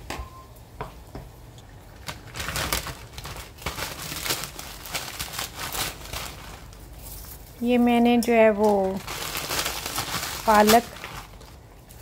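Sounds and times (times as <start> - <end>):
plastic bag crinkling: 1.9 - 7.8, 8.4 - 12.0.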